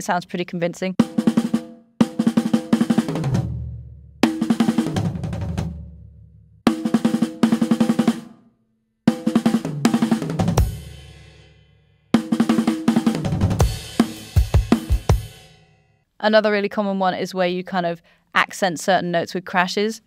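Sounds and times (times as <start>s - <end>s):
drum fills on snare and toms: 1.0s - 5.8s, 6.7s - 8.3s, 9.1s - 11.0s, 12.2s - 15.4s.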